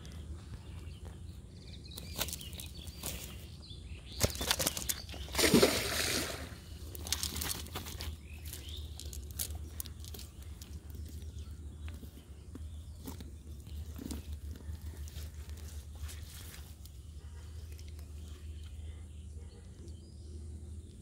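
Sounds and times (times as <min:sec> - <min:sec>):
fish flapping against net: 0:04.2 - 0:08.6
net mesh rustling: 0:06.8 - 0:12.2.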